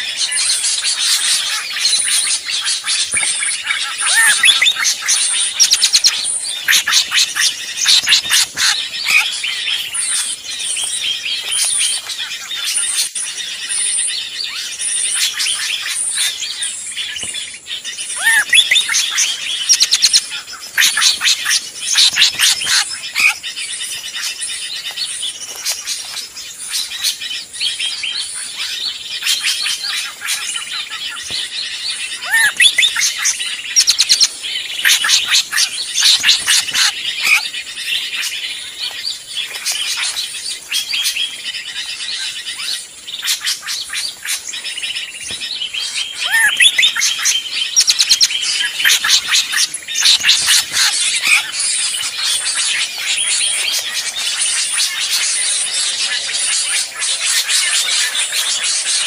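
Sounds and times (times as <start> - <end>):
birds chirping and calling: 0.0 - 59.0
rising bird whistle: 4.0 - 8.4, 18.2 - 20.2, 32.2 - 34.1, 46.2 - 51.5.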